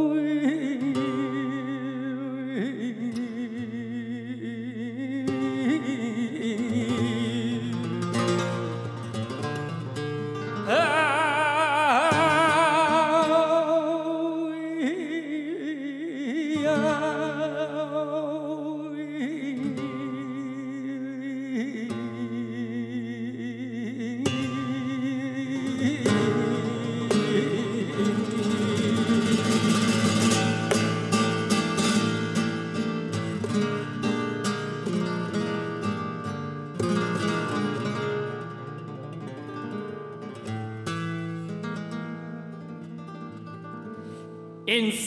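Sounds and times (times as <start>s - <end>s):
man singing: 0.0s - 9.1s, 10.5s - 34.4s, 44.6s - 45.0s
strummed guitar chords: 5.2s - 15.1s, 24.2s - 45.0s.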